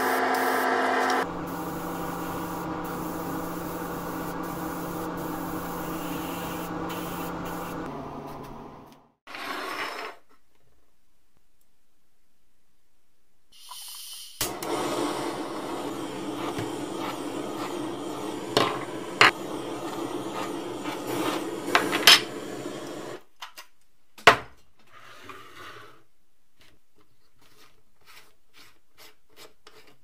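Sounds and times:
torch flame hissing: 0:01.2 - 0:07.9, 0:14.2 - 0:23.2
torch ignition click: 0:14.4 - 0:14.9.

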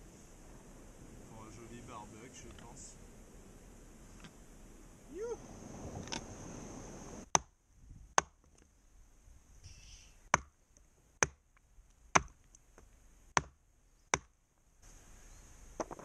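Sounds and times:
hatchet chopping wood: 0:07.3 - 0:08.6, 0:10.3 - 0:10.6, 0:11.2 - 0:12.5, 0:13.3 - 0:14.4.

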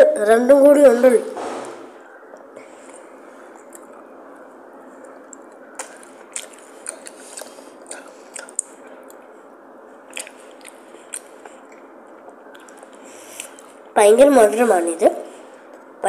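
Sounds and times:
background hum: 0:00.0 - 0:16.0
wet chewing clicks: 0:03.5 - 0:04.1, 0:05.0 - 0:09.3, 0:10.1 - 0:13.8.

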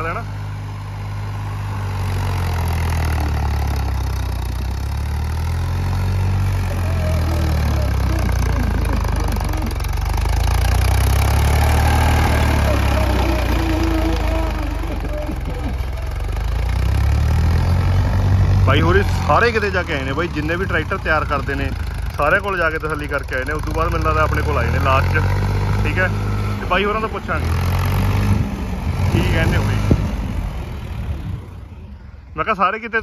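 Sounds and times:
tractor engine running: 0:00.0 - 0:33.0
faint voices: 0:06.6 - 0:10.0.

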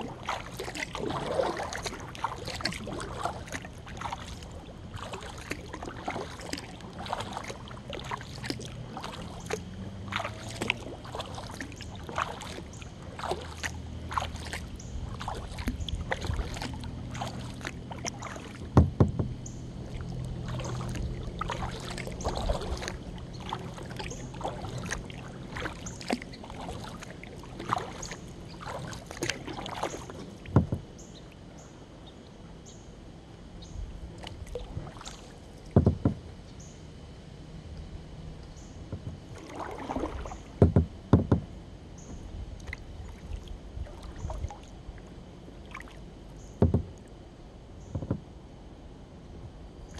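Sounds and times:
paddle splashing in water: 0:00.0 - 0:31.3, 0:34.2 - 0:36.3, 0:38.6 - 0:47.2
sharp knocks: 0:18.7 - 0:19.3, 0:35.8 - 0:36.2, 0:40.6 - 0:41.5, 0:46.6 - 0:47.0.

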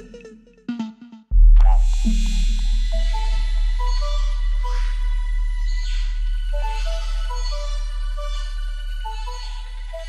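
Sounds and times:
deep electronic bass: 0:01.3 - 0:08.9.

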